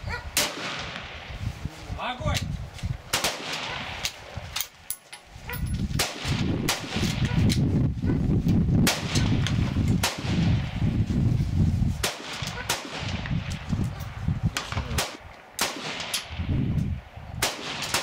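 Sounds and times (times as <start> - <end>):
rifle shots: 0.3 - 1.3, 3.1 - 4.2, 5.9 - 7.6, 8.8 - 10.8, 12.0 - 13.6, 14.6 - 16.5, 17.4 - 18.0
steady low rumble: 5.4 - 17.7.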